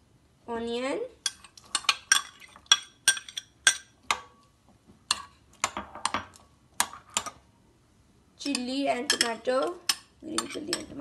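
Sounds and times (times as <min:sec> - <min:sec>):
spoon clinking against glass bowl: 0:08.4 - 0:11.0.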